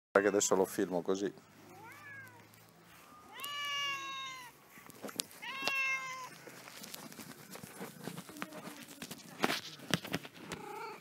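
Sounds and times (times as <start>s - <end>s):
cat meowing: 1.6s - 2.6s, 3.2s - 4.6s, 5.3s - 6.4s.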